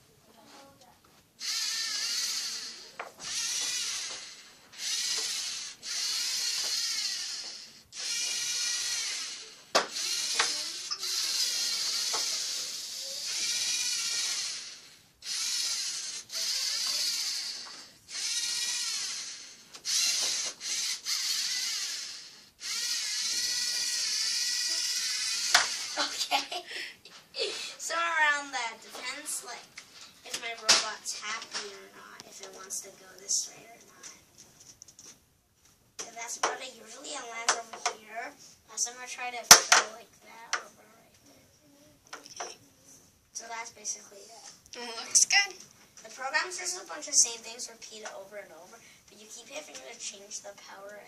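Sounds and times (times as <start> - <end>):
robot motors whining: 1.4 - 26.2.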